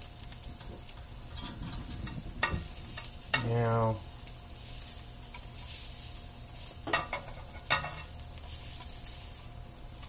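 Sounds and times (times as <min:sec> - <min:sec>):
pork chops sizzling in a pan: 0:00.0 - 0:10.0.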